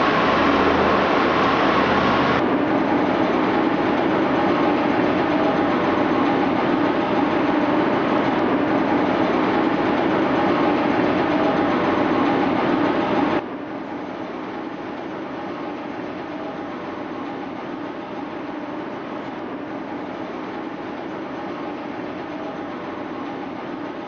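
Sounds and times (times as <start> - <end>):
dense machinery rumble: 0.0 - 13.4
low machinery hum: 0.0 - 24.0.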